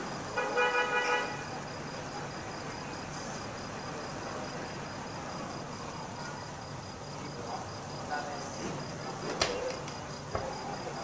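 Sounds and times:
cricket trilling: 0.0s - 11.0s.

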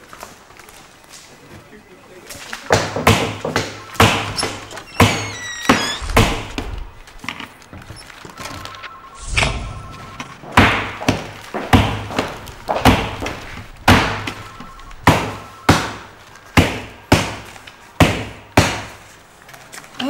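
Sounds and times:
rubber stamp thudding on papers: 2.6s - 7.9s, 10.6s - 19.2s.

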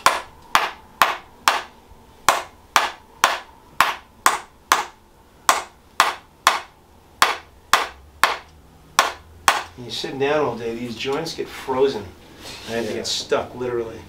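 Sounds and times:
mallet tapping a wedge: 0.0s - 1.7s, 2.3s - 9.8s.

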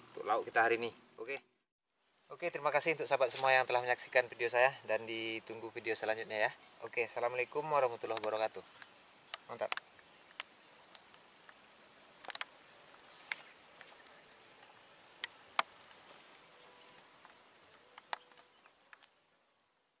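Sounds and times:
high-pitched insect chorus: 2.0s - 20.0s
sharp clicks: 8.1s - 11.6s, 12.2s - 12.6s.

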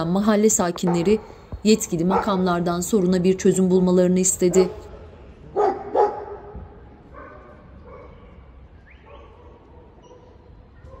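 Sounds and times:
dogs barking: 0.8s - 1.3s, 2.0s - 2.5s, 5.5s - 11.0s.

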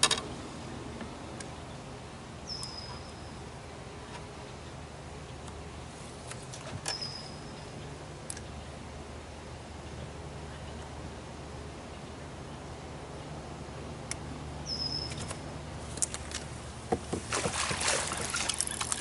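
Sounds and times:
low steady hum: 0.0s - 19.0s
bird whistle call: 14.7s - 15.2s.

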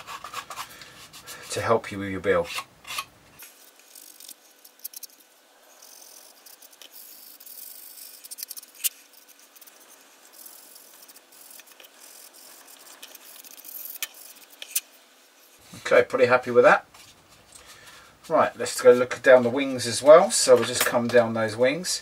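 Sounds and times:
sanding stick rubbing plastic: 0.0s - 1.7s, 5.8s - 14.8s.

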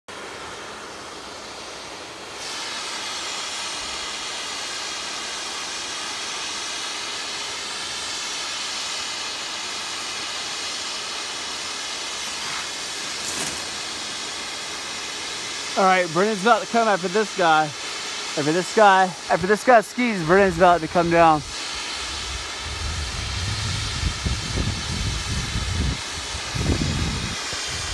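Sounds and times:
snowmaking gun hissing: 0.1s - 27.9s
skis swishing on snow: 12.1s - 14.9s.

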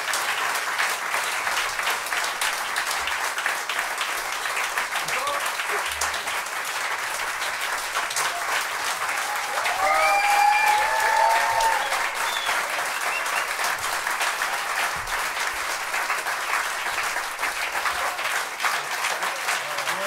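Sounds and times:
audience applauding: 0.0s - 20.0s
people cheering and whooping: 8.2s - 15.0s.

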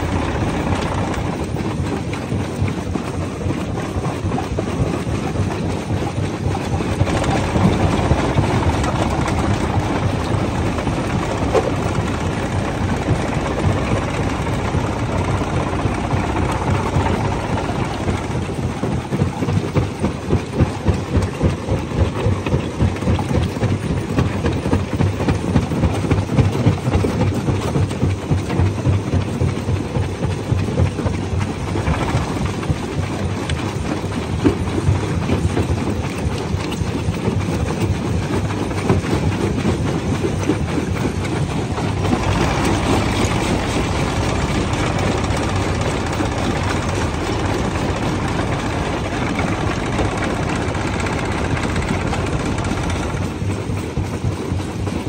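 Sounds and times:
heavy mechanical rumble: 0.0s - 55.0s.

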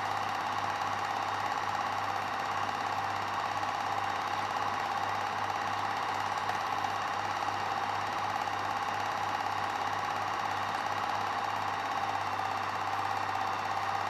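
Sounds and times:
film projector clatter: 0.0s - 14.0s.

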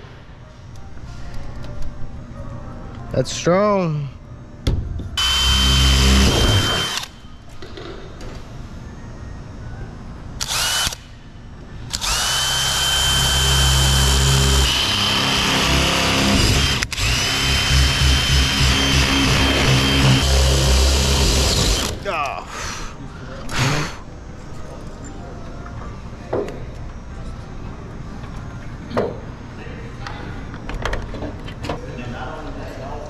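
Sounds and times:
cordless drill boring into metal: 5.2s - 7.1s, 11.9s - 21.9s.

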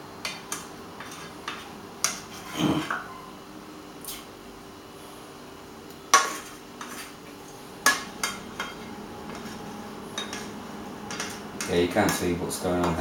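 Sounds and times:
faint steady hum: 0.0s - 13.0s
metal spoon scraping frying pan: 0.2s - 3.1s, 6.1s - 7.2s, 7.8s - 13.0s.

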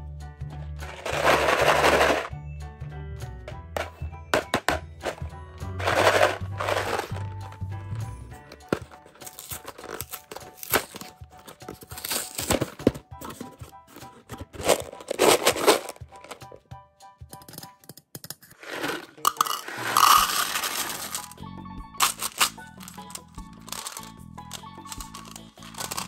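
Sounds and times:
candies rattling into plastic cup: 0.8s - 2.3s, 4.4s - 7.7s, 8.4s - 16.6s, 18.4s - 21.4s, 22.0s - 26.0s
paper bag crinkling: 0.8s - 2.3s, 5.8s - 7.6s, 8.6s - 16.4s, 18.6s - 21.4s, 22.0s - 26.0s.

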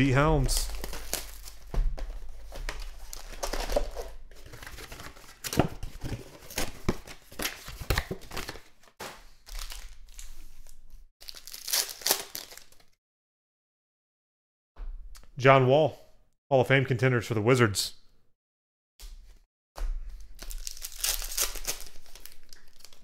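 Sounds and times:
plastic wrappers crinkling and rustling: 0.1s - 13.0s, 20.2s - 23.0s.

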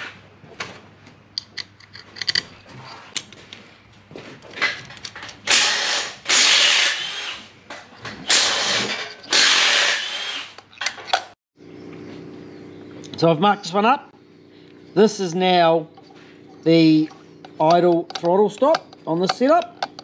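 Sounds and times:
loud rasping bursts: 5.5s - 7.5s, 8.3s - 10.6s
light metallic clicks and taps: 17.1s - 20.0s.

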